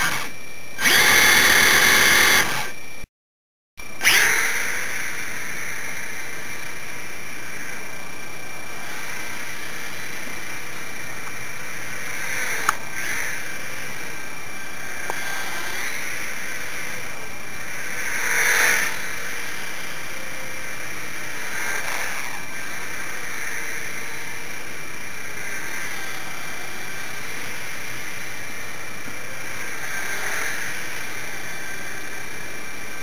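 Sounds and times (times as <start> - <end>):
small electric motors whining: 0.0 - 3.1, 3.8 - 33.0
sharp clicks: 12.6 - 13.2.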